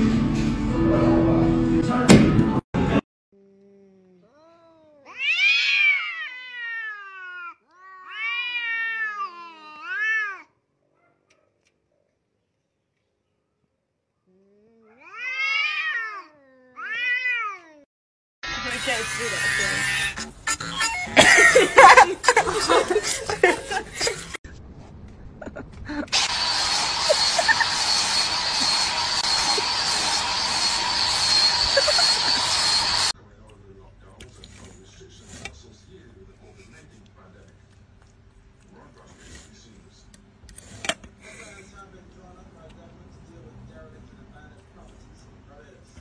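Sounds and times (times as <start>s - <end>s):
cats yowling: 4.3s - 10.5s, 14.8s - 17.9s
angle grinder whining: 18.4s - 20.3s, 26.1s - 33.2s
squeaky laughter-like chattering: 18.8s - 24.4s, 26.8s - 30.2s, 30.8s - 33.1s.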